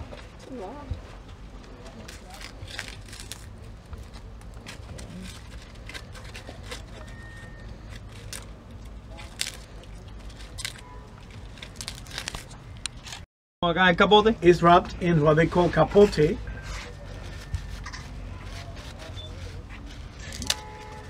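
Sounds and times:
dry leaves crackling and rustling: 1.5 - 13.2, 15.7 - 21.0.

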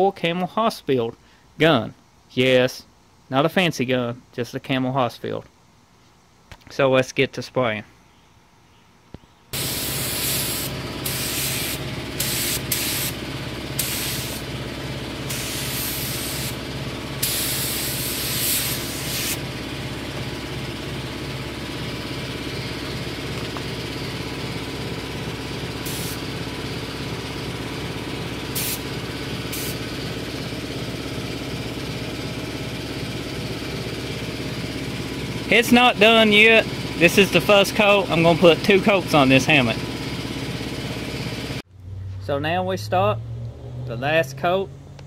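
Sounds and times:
steady machine hum: 9.4 - 43.3
spray gun hissing bursts: 9.6 - 19.6, 25.7 - 26.4, 28.3 - 30.0.

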